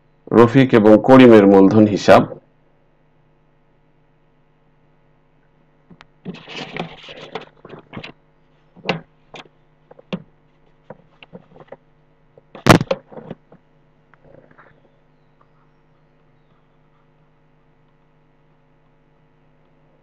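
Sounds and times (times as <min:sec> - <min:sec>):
electrical mains hum: 0:00.0 - 0:20.0
pen scratchy rustle: 0:06.2 - 0:08.1, 0:09.9 - 0:11.8
clicks and knocks: 0:12.4 - 0:13.6.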